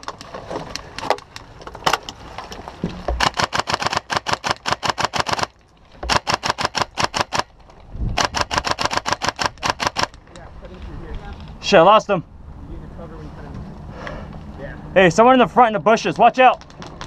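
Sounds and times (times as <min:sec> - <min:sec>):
airsoft rifle rapid fire: 0:03.2 - 0:05.5, 0:06.1 - 0:07.5, 0:08.2 - 0:10.2.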